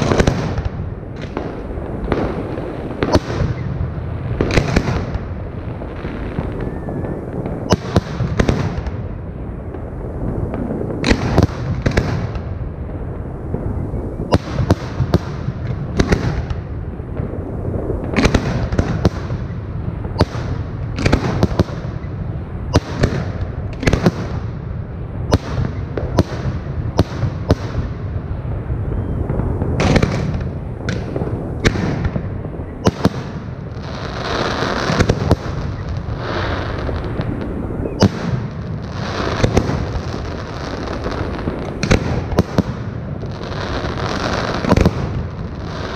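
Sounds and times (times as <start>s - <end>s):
fireworks bursting with sharp bangs: 0.0s - 45.9s.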